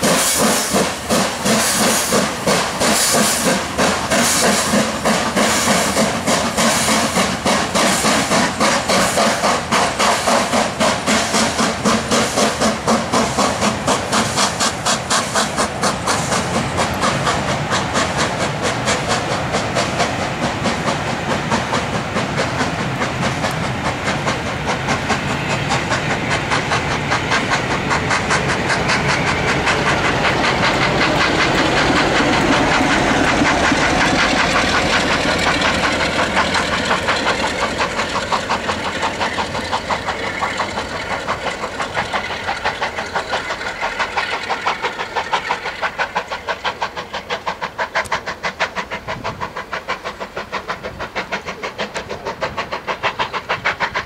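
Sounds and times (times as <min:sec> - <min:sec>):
steam locomotive exhaust chuffs: 0:00.0 - 0:54.0
train wheels on track: 0:00.0 - 0:54.0.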